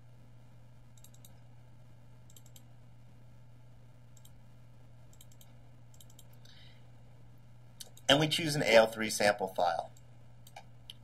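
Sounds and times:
low steady hum: 0.0s - 11.0s
computer mouse clicks: 1.0s - 1.4s, 2.3s - 2.7s, 4.2s - 4.4s, 5.1s - 6.4s, 9.9s - 11.0s.

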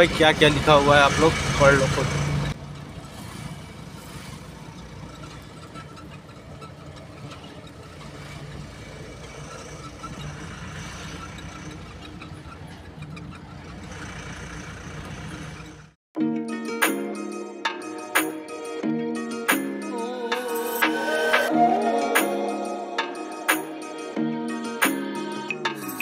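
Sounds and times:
road noise: 0.0s - 16.0s
truck engine droning: 0.0s - 16.0s.

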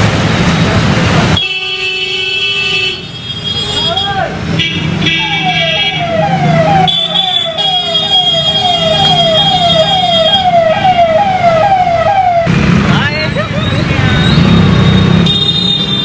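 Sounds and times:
traffic hum: 0.0s - 16.0s
electronic siren sweeping: 5.2s - 12.5s.

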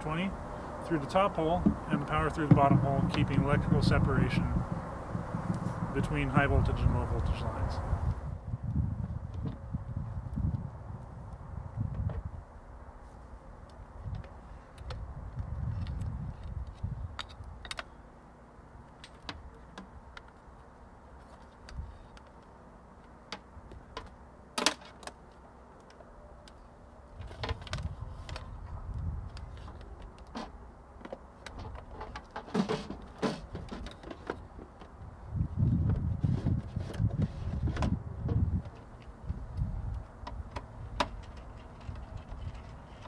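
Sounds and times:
wind rumble on microphone: 0.3s - 12.8s, 13.5s - 17.7s, 27.1s - 30.0s, 34.9s - 43.0s
cables and hardware rattling: 37.0s - 43.0s.

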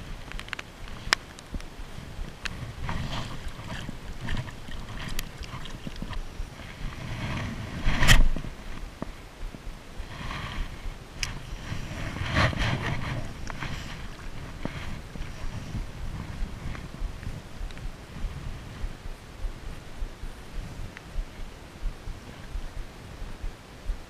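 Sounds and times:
wind buffeting microphone: 0.0s - 24.0s
small clicks: 0.2s - 1.7s
sleeve brushing microphone: 1.9s - 8.9s, 10.0s - 24.0s.

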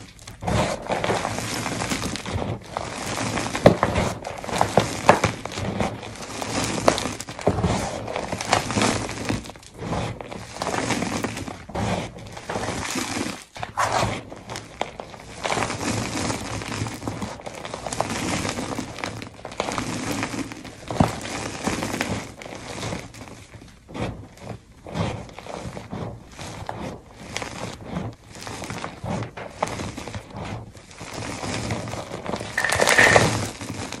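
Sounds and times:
chalk crunching by hand: 0.0s - 23.2s, 30.9s - 34.0s.

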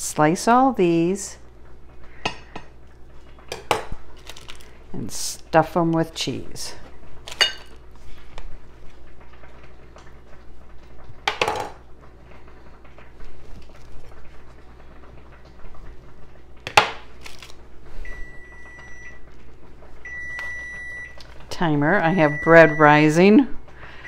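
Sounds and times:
knife clattering: 7.3s - 7.7s
kitchen timer beeping: 18.1s - 19.3s, 20.0s - 21.2s, 21.9s - 24.0s.

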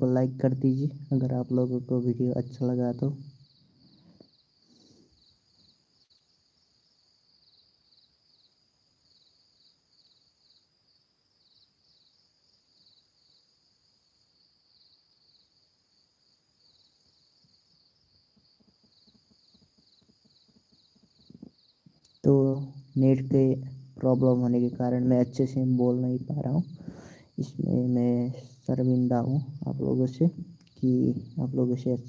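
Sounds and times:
insects chirping: 0.0s - 32.0s.

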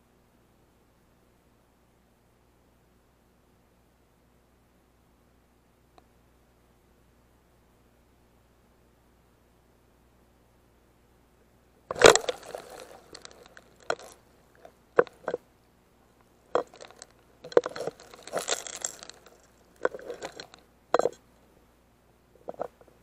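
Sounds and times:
crackling and clicking: 11.9s - 15.4s, 16.2s - 21.2s.

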